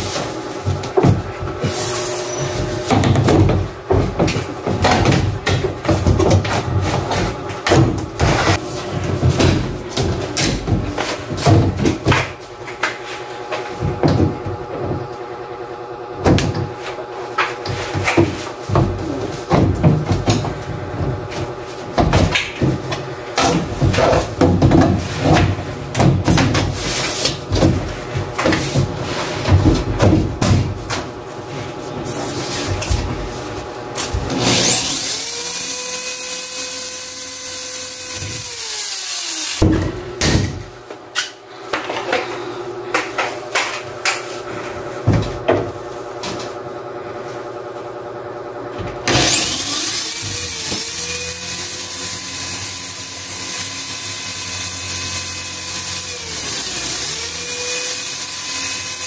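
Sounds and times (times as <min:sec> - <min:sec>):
electric drill whining: 0:34.4 - 0:39.6, 0:49.1 - 0:59.0.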